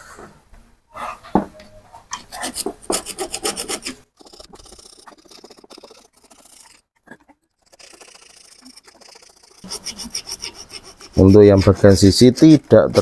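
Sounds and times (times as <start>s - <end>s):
hand tool scraping metal housing: 9.6s - 13.0s.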